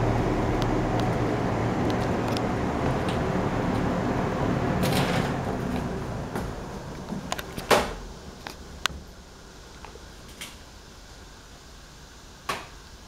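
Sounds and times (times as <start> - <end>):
box fan slowing down: 0.0 - 13.0.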